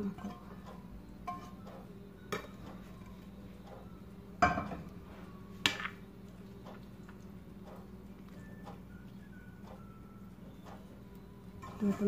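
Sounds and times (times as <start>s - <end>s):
steady low hum: 0.0s - 12.0s
metal spoon clanking on pan: 1.2s - 1.6s.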